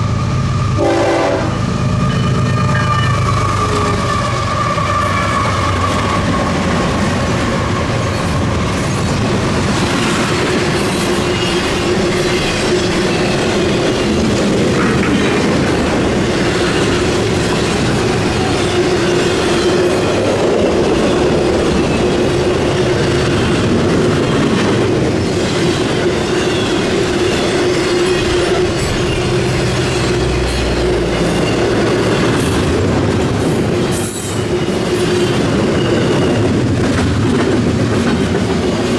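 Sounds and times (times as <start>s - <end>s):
freight train rumbling past: 0.0s - 38.9s
wheels clacking over rail joints: 3.3s - 33.8s.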